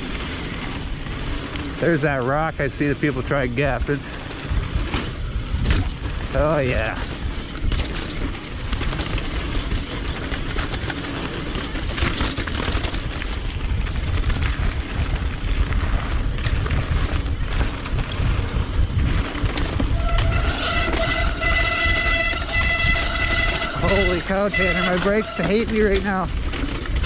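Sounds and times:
brakes squealing: 0.0s - 27.0s
tyres rattling over rock: 0.0s - 27.0s
wind on microphone: 3.3s - 10.9s, 11.6s - 24.7s.

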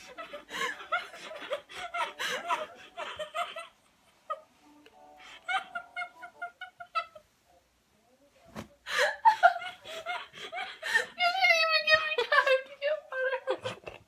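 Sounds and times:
young women giggling: 0.0s - 4.6s, 5.2s - 7.2s, 8.9s - 11.2s.

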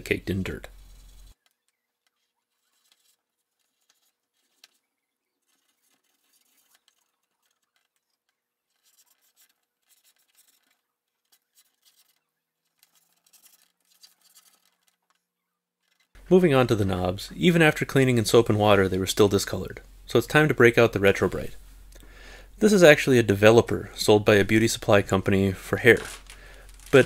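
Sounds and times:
cotton swab scratching plastic panel: 0.7s - 16.2s.

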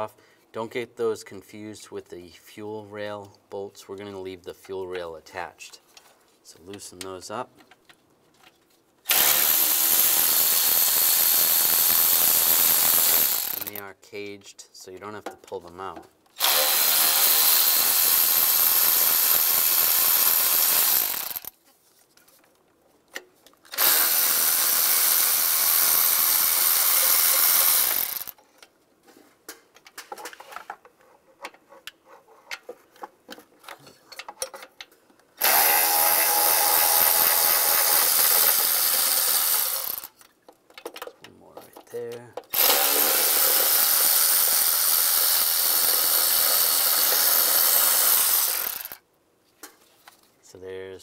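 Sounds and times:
cordless ratchet spinning: 9.1s - 13.8s, 16.4s - 21.5s, 23.7s - 28.4s, 35.4s - 40.1s, 42.5s - 49.0s.

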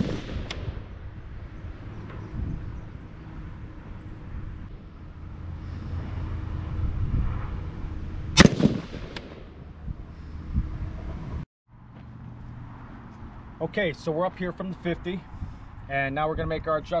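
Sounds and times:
rifle shot with echo: 0.0s - 0.9s, 8.4s - 9.6s.

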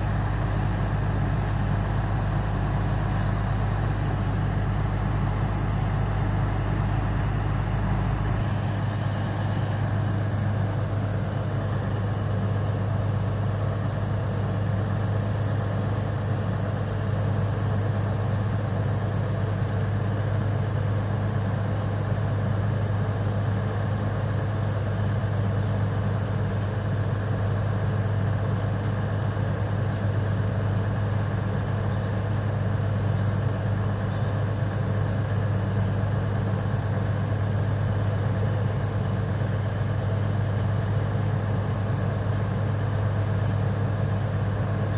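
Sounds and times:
deep rumble: 0.0s - 14.1s
diesel locomotive engine idling: 0.0s - 44.9s.

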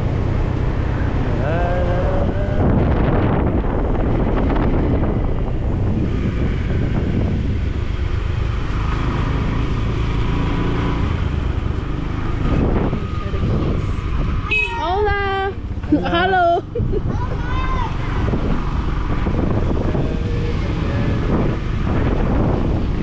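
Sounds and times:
vehicle engine rumble: 0.0s - 23.0s
wind on microphone: 0.0s - 23.0s.

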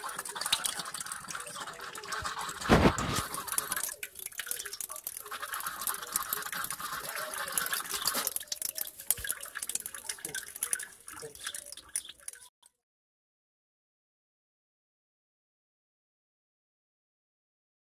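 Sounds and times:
water dripping: 0.0s - 12.5s
water pouring into a basin: 0.0s - 12.5s.

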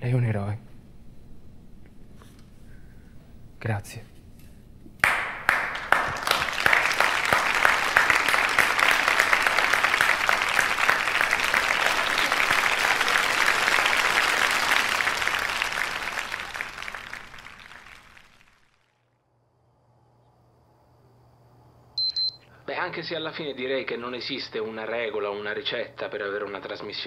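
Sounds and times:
audience applauding: 5.0s - 18.9s.

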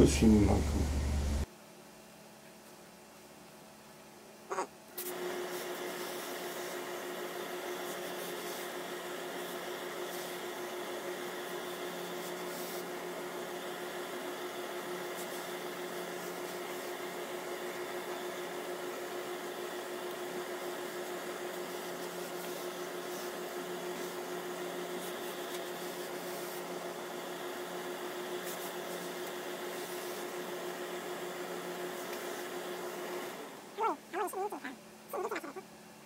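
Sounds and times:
machine hum: 0.0s - 1.5s
steam iron hissing: 5.0s - 33.6s.

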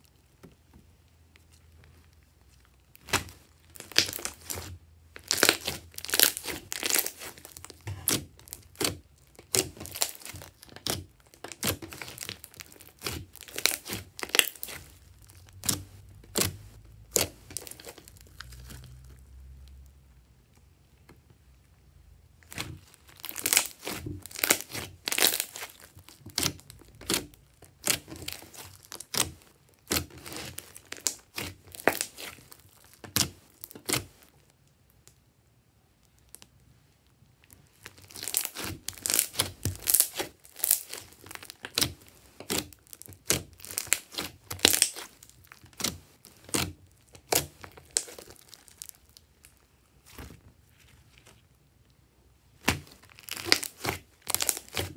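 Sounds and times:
slime sticky clicks and crackles: 22.5s - 34.3s, 37.4s - 49.6s, 52.6s - 54.9s.

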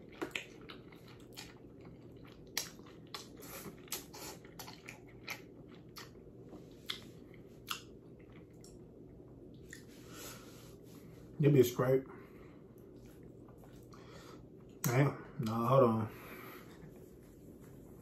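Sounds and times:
wet chewing smacks: 0.0s - 8.9s
low room hum: 0.0s - 18.0s.

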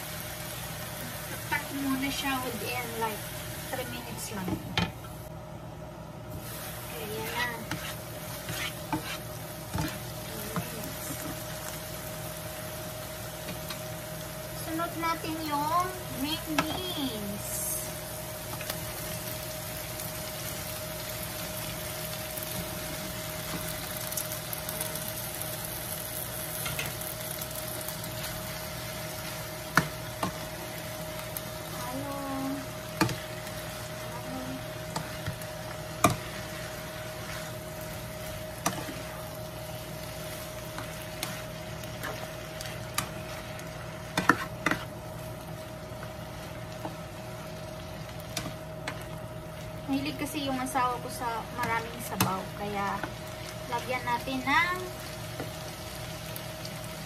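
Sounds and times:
food sizzling in frying pan: 0.0s - 57.0s.

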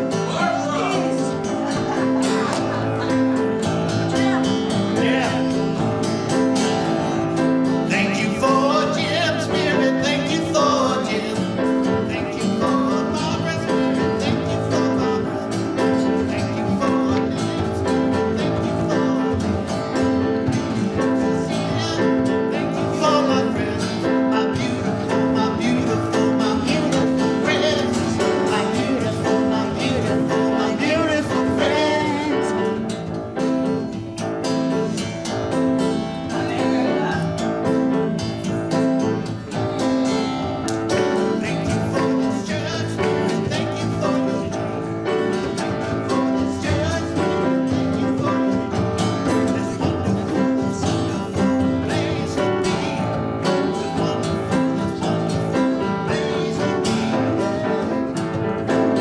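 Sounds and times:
people singing: 0.0s - 33.0s, 34.7s - 59.0s
grand piano: 0.0s - 59.0s
strummed acoustic guitar: 0.0s - 59.0s.

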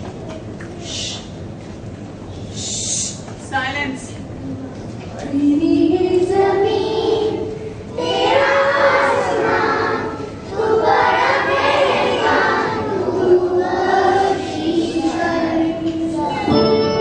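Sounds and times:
children singing in unison: 5.9s - 17.0s.

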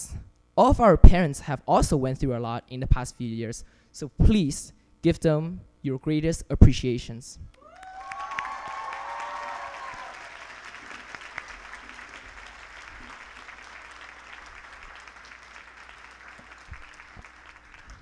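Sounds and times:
audience applauding: 7.6s - 18.0s.

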